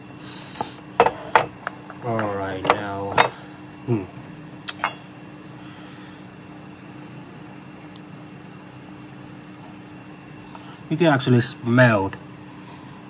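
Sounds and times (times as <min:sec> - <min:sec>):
steady background hum: 0:00.0 - 0:13.0
ceramic teapot clinks: 0:04.7 - 0:05.1.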